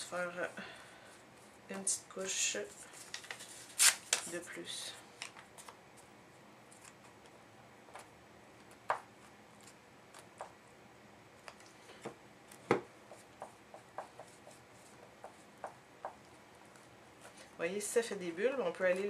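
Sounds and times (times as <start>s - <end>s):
paintbrush and canvas taps: 12.0s - 16.3s.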